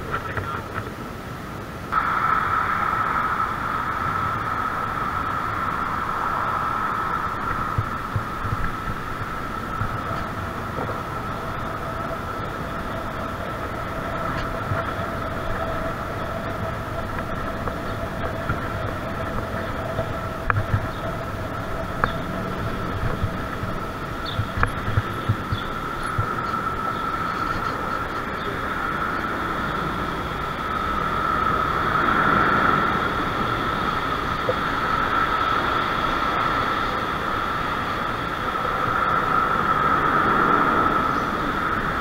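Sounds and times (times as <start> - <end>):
bicycle tyres rolling rumble: 0.0 - 42.0
lower whine: 0.0 - 42.0
steady whine: 0.0 - 42.0
sharp ticks: 6.8 - 29.5.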